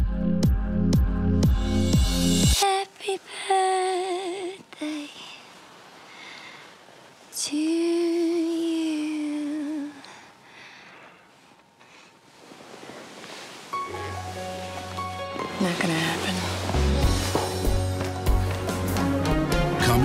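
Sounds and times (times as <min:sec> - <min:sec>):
electronic music beat: 0:00.0 - 0:02.6.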